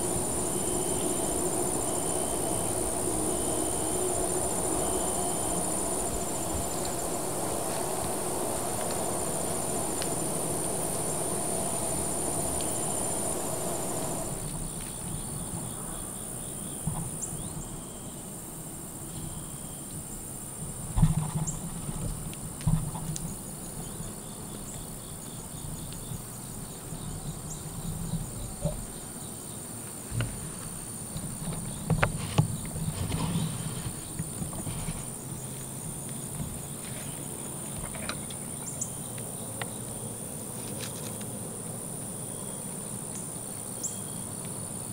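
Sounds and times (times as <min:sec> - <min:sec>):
low hum: 0:00.0 - 0:14.8
rustles: 0:00.0 - 0:16.0, 0:20.9 - 0:44.9
insect chorus drone: 0:00.0 - 0:44.9.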